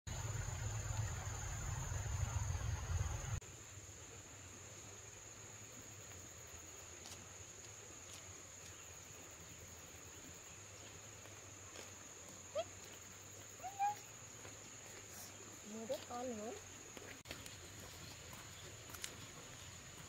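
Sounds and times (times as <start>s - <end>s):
faint low hum: 0.1s - 3.4s
loud low rumble: 0.1s - 3.4s.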